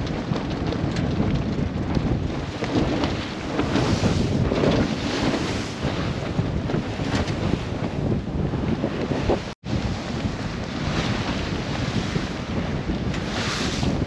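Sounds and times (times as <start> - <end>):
rough sea against hull: 0.0 - 14.0
wind buffeting microphone: 0.0 - 14.0.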